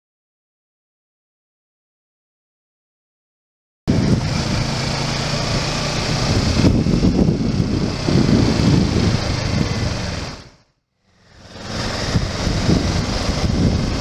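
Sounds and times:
wind rushing over microphone: 3.9s - 10.6s, 11.3s - 14.0s
motorcycle engine running: 3.9s - 14.0s.

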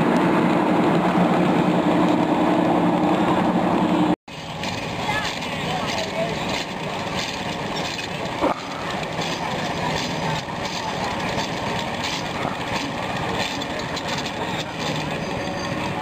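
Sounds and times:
steam engine hissing and chuffing: 0.0s - 16.0s.

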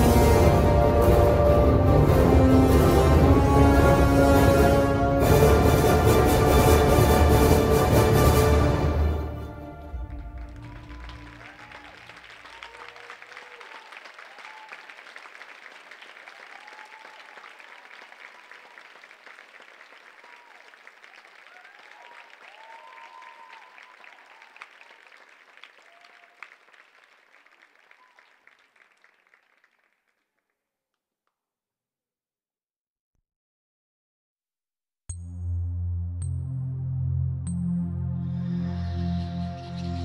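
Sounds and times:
audience applauding: 7.6s - 30.4s
cheers and whoops: 10.1s - 15.2s, 16.1s - 19.0s, 20.0s - 25.1s, 25.7s - 26.6s.

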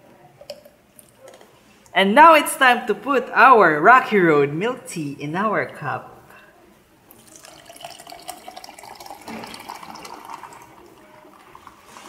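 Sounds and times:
liquid pouring and splashing: 7.1s - 12.0s.

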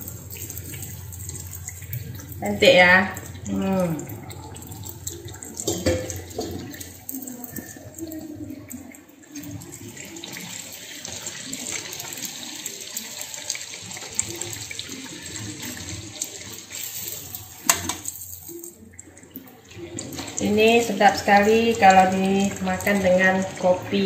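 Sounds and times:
dough sizzling in hot oil: 0.0s - 24.0s.

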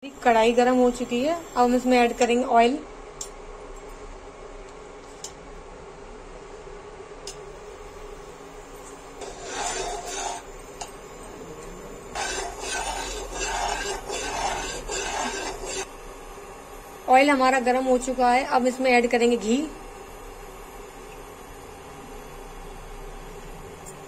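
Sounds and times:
spoon scraping metal pan: 9.2s - 10.5s, 12.2s - 15.9s.

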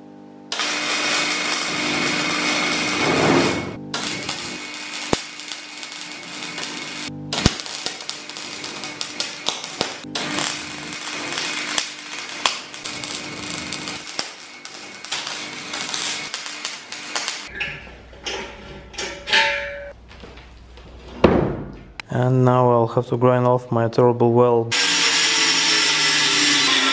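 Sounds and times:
arc welding crackle: 0.5s - 17.5s, 24.8s - 26.9s
metal tube clanking: 17.5s - 20.0s.

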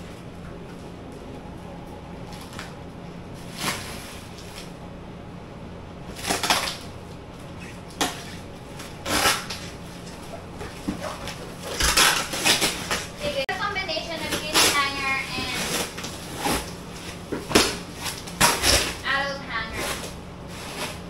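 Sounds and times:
steady low hum: 0.0s - 21.0s
cardboard boxes rustling and scraping: 3.4s - 4.7s, 14.8s - 21.0s.

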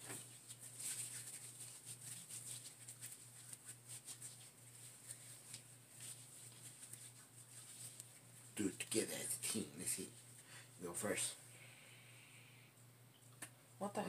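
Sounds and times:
hands rubbing cream on skin: 0.0s - 9.0s.

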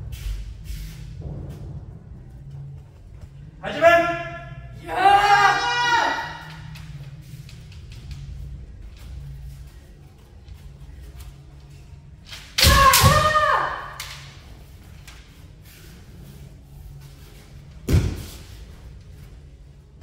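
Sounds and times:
fighters yelling: 3.6s - 6.6s.

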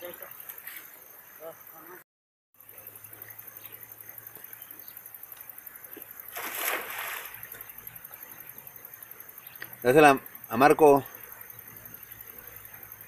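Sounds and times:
insects chirring: 0.0s - 2.0s, 2.6s - 13.0s
net splashing into water: 6.3s - 7.5s.

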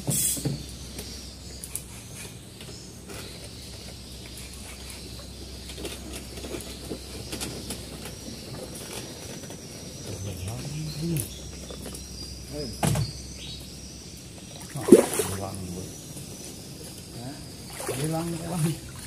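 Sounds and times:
steady low hum: 0.0s - 19.0s
small splashes: 14.5s - 15.9s, 17.6s - 19.0s
fishing rod swishing: 14.8s - 15.5s.

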